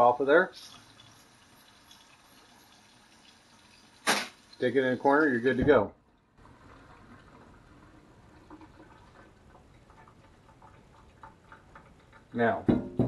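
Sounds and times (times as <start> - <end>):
water drips in a steel sink: 0.6 - 4.7, 8.4 - 12.6.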